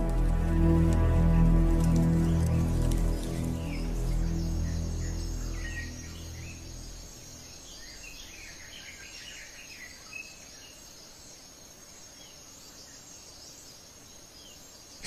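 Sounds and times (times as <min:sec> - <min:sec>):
background music: 0:00.0 - 0:08.6
high insect drone: 0:00.0 - 0:15.0.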